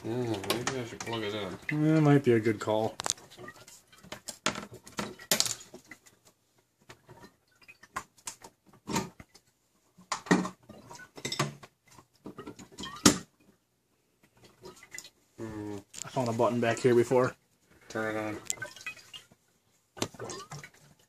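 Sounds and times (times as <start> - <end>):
knocks and clatter from handling: 3.0 - 6.0.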